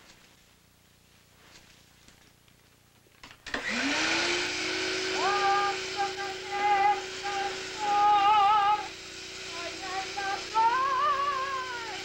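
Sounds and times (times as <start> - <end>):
vacuum cleaner motor whine: 3.2 - 12.0
woman humming: 9.6 - 12.0.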